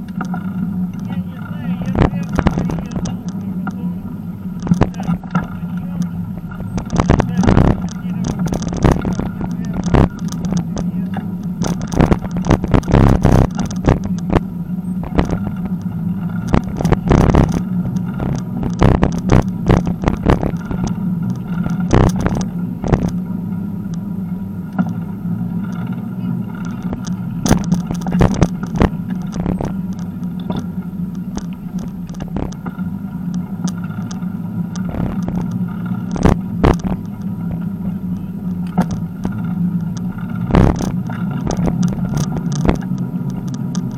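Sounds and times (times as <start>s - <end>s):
bicycle rattling over bumps: 0.0s - 43.9s
bicycle tyres rolling hum: 0.0s - 43.9s.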